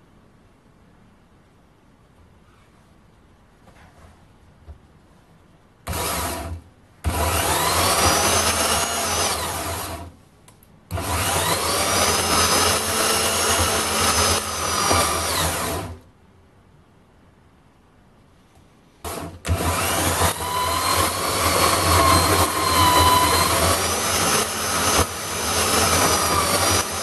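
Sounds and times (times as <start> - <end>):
band saw cutting steel: 7.1 - 10.0, 19.1 - 27.0.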